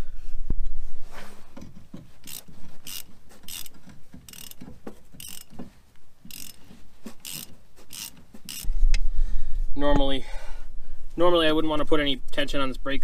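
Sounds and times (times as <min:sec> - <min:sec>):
hand ratchet clicking: 0:02.0 - 0:08.7.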